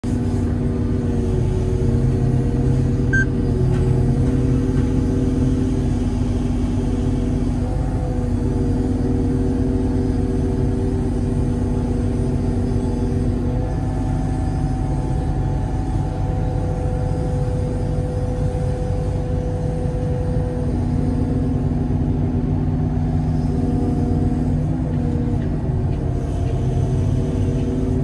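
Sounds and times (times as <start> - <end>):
crane engine and hydraulics drone: 0.0 - 28.0.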